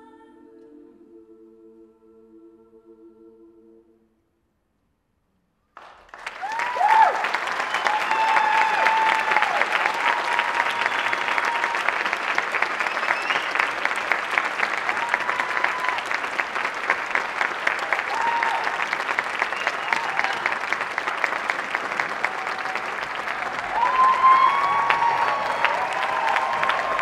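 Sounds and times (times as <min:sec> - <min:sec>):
women's choir singing chord: 0:00.0 - 0:04.1
audience applause: 0:05.8 - 0:27.0
people cheering: 0:06.1 - 0:27.0.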